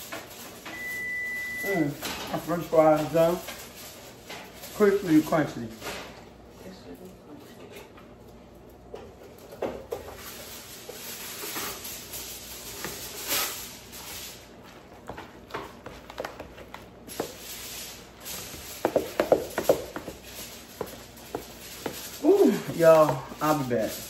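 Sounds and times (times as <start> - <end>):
utensils scraping and knocking dishes: 9.4 - 14.2, 15.2 - 24.0.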